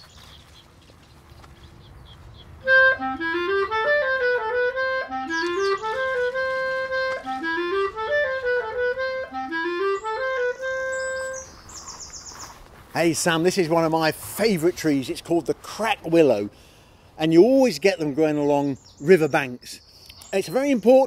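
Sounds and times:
instrumental background music: 2.6 - 11.5.

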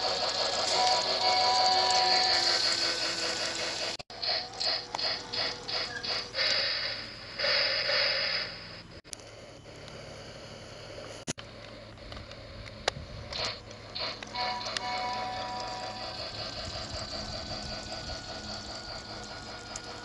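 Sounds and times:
toy train whirring and clicking: 0.0 - 20.0.

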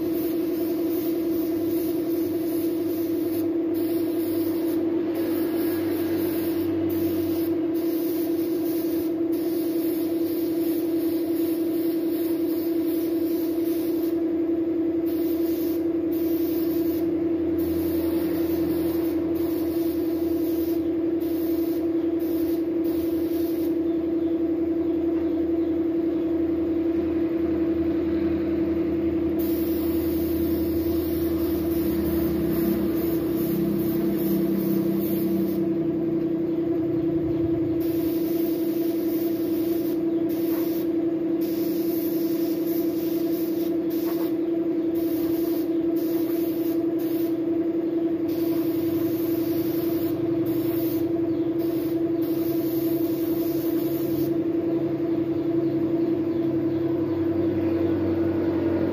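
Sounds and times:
spray gun hissing: 0.0 - 14.2, 15.0 - 23.8, 29.4 - 35.7, 37.8 - 47.5, 48.3 - 54.4
air compressor hum: 0.0 - 55.9.

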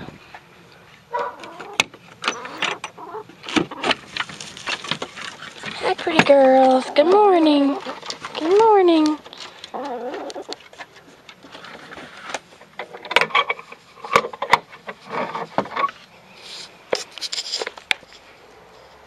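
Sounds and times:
hens scratching in dry leaves: 2.5 - 12.5
soft hen clucks: 9.7 - 10.6.

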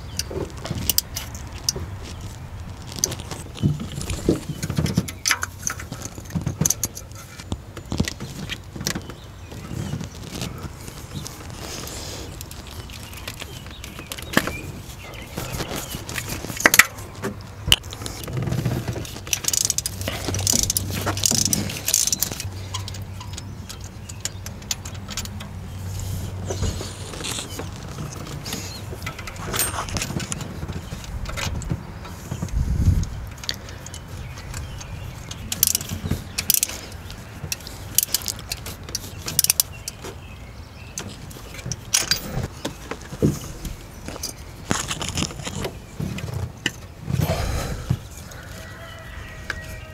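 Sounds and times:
metal tools clicking and rattling: 2.9 - 9.0, 17.7 - 26.2, 27.5 - 31.7, 33.0 - 40.0, 41.0 - 42.5.

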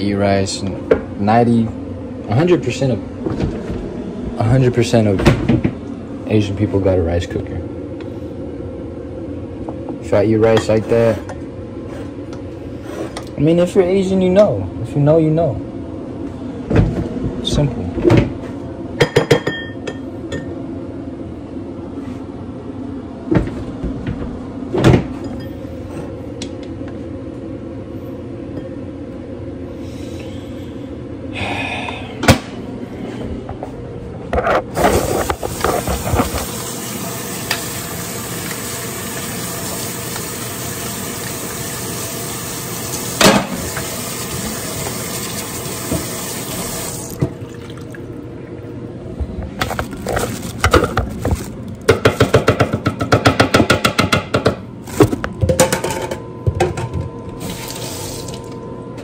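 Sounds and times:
steady hum: 0.0 - 59.0
pots and utensils knocking: 19.0 - 20.5, 51.9 - 54.6
tap water running into sink: 35.5 - 48.0.

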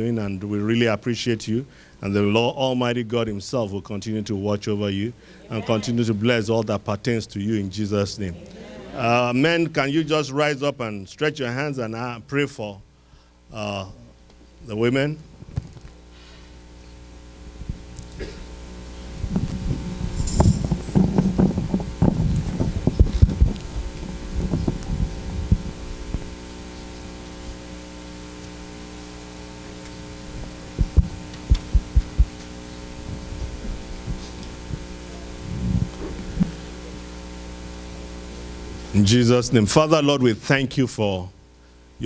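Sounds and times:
electrical mains hum: 0.0 - 42.0
muffled low thumps: 19.1 - 27.6, 30.1 - 38.9.

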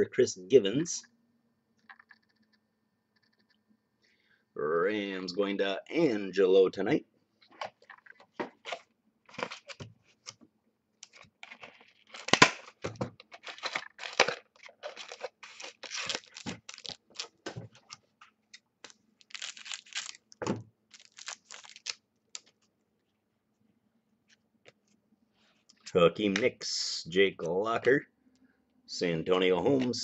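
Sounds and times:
foil wrapper tearing and crinkling: 11.4 - 17.4, 18.8 - 20.3, 20.9 - 22.5.

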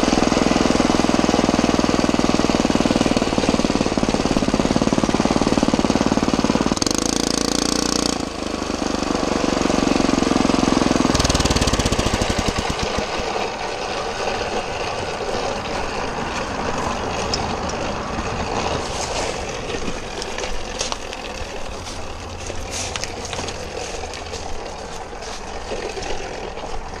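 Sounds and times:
small engine humming at low revs: 0.0 - 27.0
tyres crackling over dry leaves: 11.2 - 27.0.

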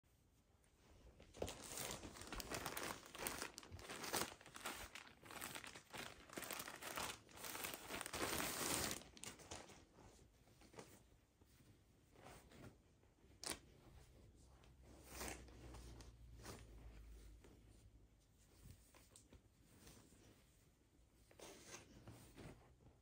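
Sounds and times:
plastic bags crinkling: 1.4 - 9.6.

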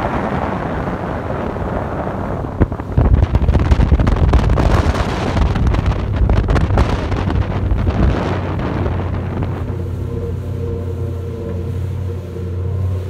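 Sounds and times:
outboard engine rumble: 0.0 - 13.0
wind buffeting microphone: 0.0 - 13.0.

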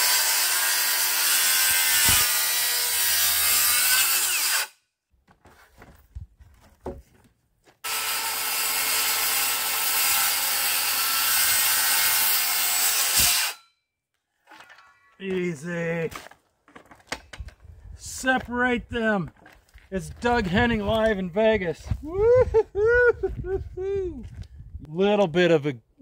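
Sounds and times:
electric chainsaw cutting wood: 0.0 - 4.7, 7.8 - 13.6.

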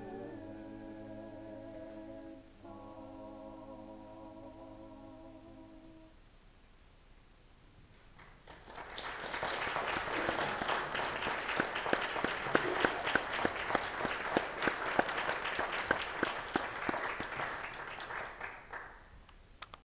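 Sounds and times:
audience applauding: 8.2 - 19.1.

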